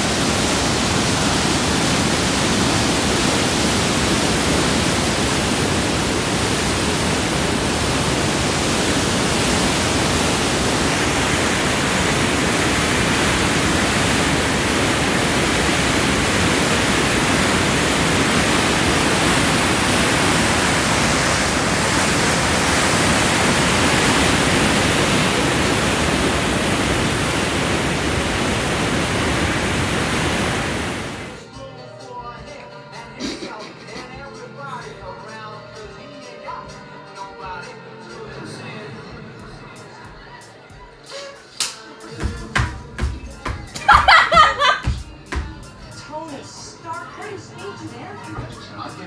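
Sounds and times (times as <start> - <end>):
water rushing over rocks: 0.0 - 31.4.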